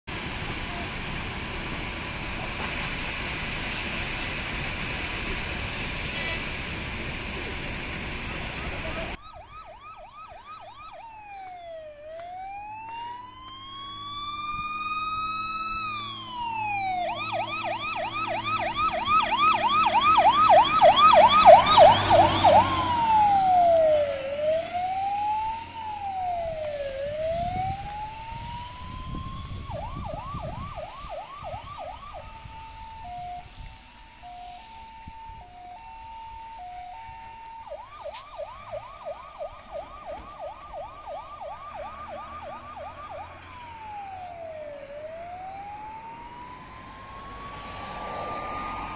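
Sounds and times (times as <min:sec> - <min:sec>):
truck engine running: 0:00.1 - 0:09.2
fire engine siren: 0:00.1 - 0:48.9.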